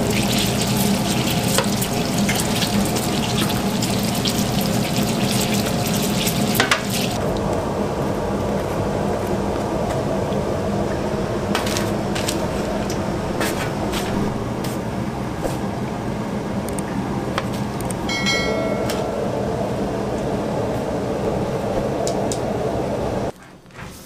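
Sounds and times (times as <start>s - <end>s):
ventilation fan hum: 0.0s - 24.0s
short metallic ring: 18.1s - 19.2s.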